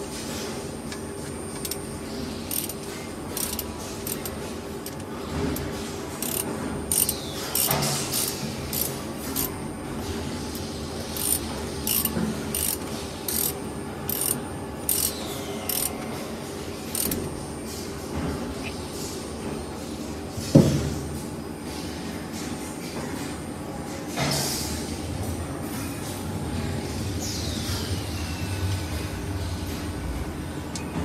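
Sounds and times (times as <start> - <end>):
wrench clicking and ratcheting: 2.5 - 5.0, 6.2 - 9.5, 11.2 - 15.9, 16.9 - 17.2.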